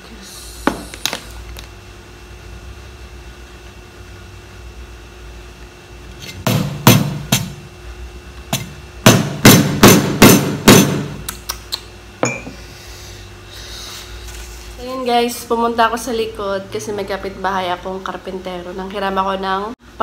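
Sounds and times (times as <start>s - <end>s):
hammer cracking crab shells: 6.5s - 7.6s, 8.5s - 11.3s.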